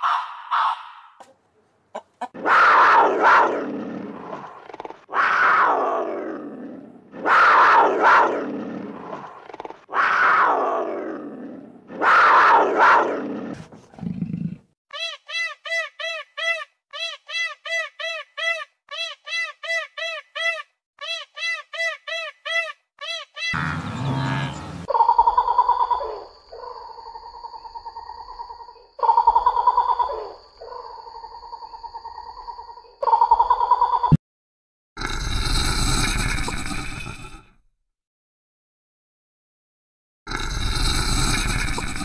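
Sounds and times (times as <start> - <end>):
big cat calling: 23.5 - 26.2.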